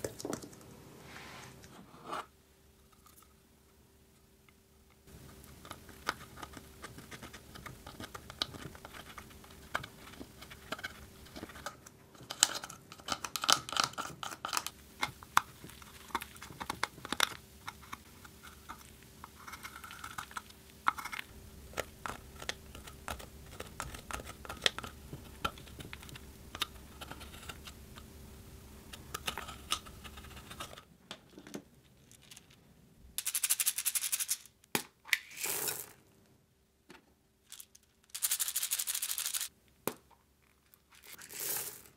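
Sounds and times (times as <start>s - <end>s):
beads rattling into glass bowl: 37.5s - 39.5s, 41.1s - 41.9s.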